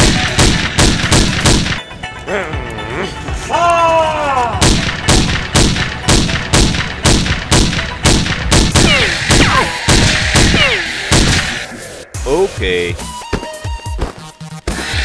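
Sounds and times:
blaster gunfire shots: 0.0 - 1.8, 4.6 - 11.6
falling zapping tones: 8.7 - 11.6.

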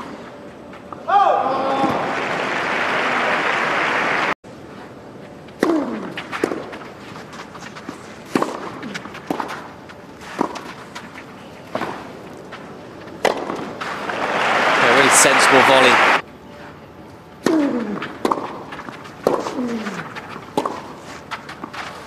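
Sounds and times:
crowd applause: 1.7 - 4.4, 13.9 - 16.2
racket striking tennis ball: 5.6 - 11.1, 13.2 - 14.0, 17.4 - 19.9, 20.5 - 21.8.

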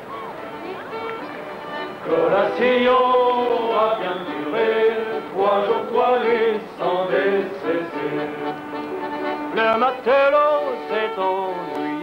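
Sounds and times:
men singing a chant: 2.1 - 8.5.

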